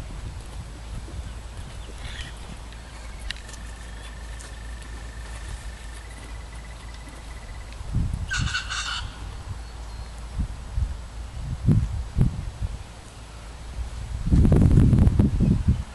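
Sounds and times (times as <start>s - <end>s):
horse hooves thudding on sand: 0.0s - 8.4s.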